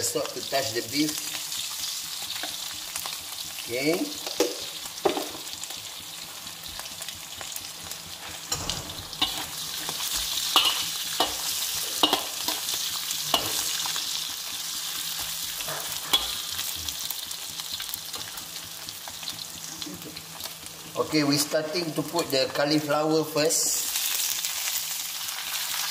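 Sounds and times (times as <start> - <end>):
food sizzling in hot oil: 0.0 - 25.9
metal spatula scraping a wok: 8.6 - 14.0, 15.5 - 16.6.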